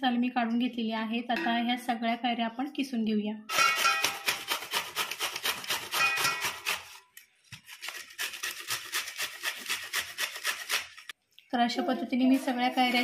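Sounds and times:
rasping grater strokes: 3.5s - 7.0s, 7.6s - 11.1s, 12.3s - 13.0s.

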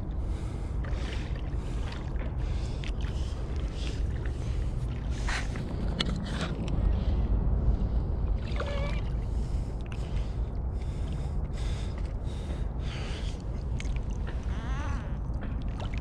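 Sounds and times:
low rumble: 0.0s - 16.0s
water splashing: 0.2s - 6.5s, 8.4s - 16.0s.

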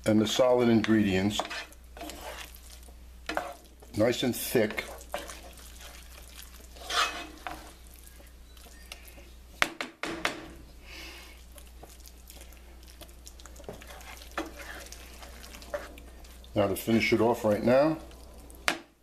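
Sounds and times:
wooden spoon stirring in a pan: 0.0s - 9.6s, 10.8s - 18.8s
spoon scraping a pan: 0.5s - 9.3s, 11.5s - 17.2s
low steady hum: 10.2s - 18.8s.

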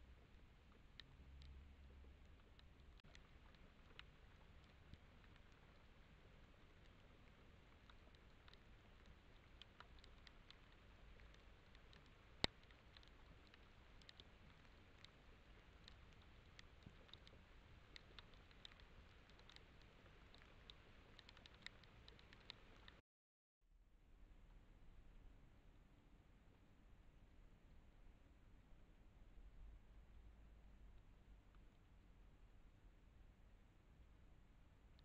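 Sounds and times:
faint microphone hiss: 0.0s - 23.0s
faint ticks: 0.0s - 23.0s, 30.8s - 32.0s.

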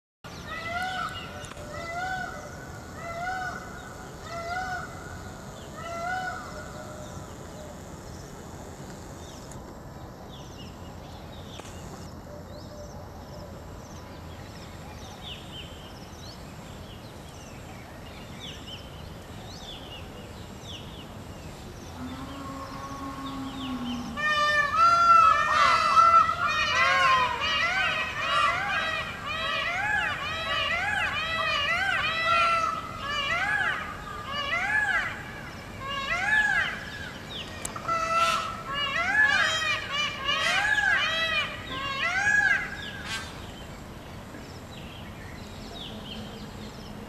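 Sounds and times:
small birds chirping: 10.4s - 24.2s
low held peafowl call: 22.0s - 35.2s, 35.8s - 43.4s
peafowl honking calls: 22.0s - 43.4s.

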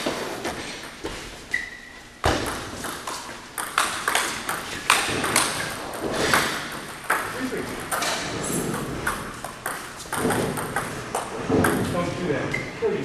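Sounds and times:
short squeak: 1.5s - 2.0s
table tennis ball clicking: 2.8s - 11.8s.

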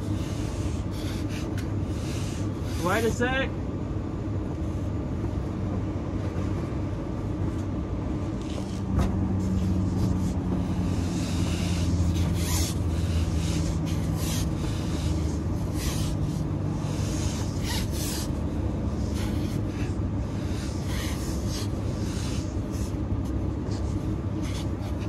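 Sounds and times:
steady low hum: 0.0s - 25.0s
pipe scraping and rubbing: 8.4s - 23.0s.

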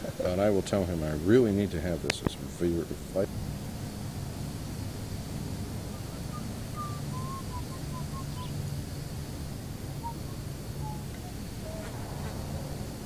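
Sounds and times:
steady low hum: 0.0s - 13.0s
bird chirping: 5.8s - 8.8s, 9.9s - 12.5s.

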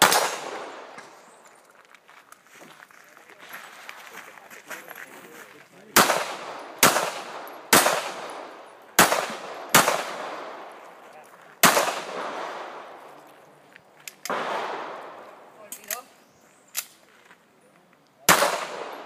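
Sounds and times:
handgun shots with echo: 0.0s - 1.2s, 6.0s - 10.7s, 11.6s - 12.8s, 18.3s - 19.0s.

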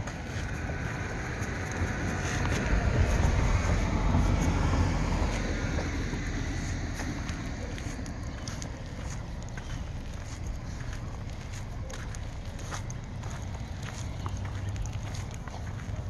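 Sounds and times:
car passing: 0.0s - 16.0s.

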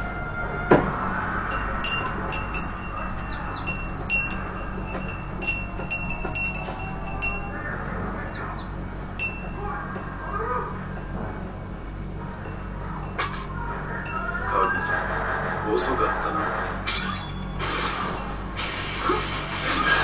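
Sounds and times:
steady low hum: 0.0s - 20.0s
small bird chirping: 2.0s - 5.0s, 7.3s - 9.4s.

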